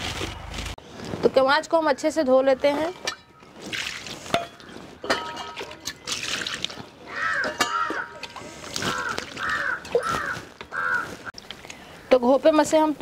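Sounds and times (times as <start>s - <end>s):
water pouring and splashing: 3.5s - 10.2s
crow cawing: 7.1s - 8.2s, 8.8s - 11.3s.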